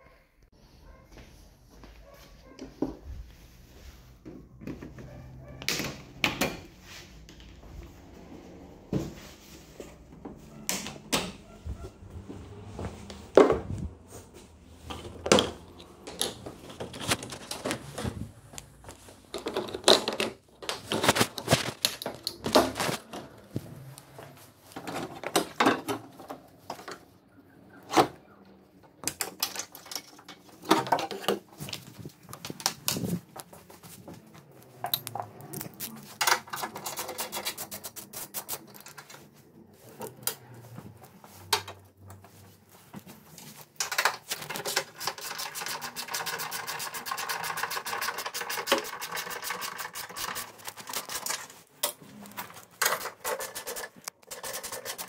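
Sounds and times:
tools clicking and clattering on plastic: 14.9 - 23.5, 24.7 - 27.0, 28.9 - 33.4, 34.8 - 39.3, 43.4 - 55.0.

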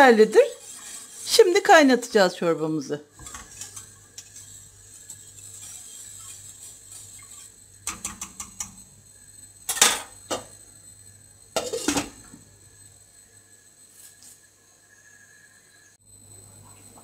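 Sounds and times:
whisk scraping in metal pot: 0.0 - 2.1, 3.2 - 8.7.

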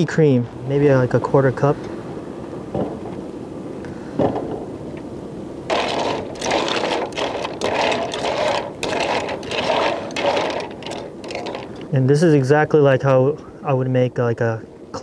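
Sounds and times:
clam shells clattering: 5.7 - 11.9.

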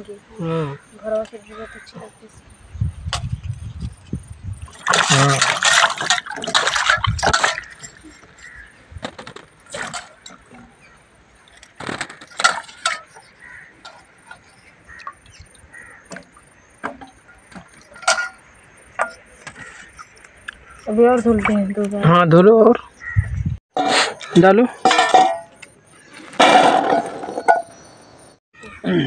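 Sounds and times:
water dripping: 4.6 - 8.8, 9.5 - 22.0
water splash: 4.7 - 8.0.

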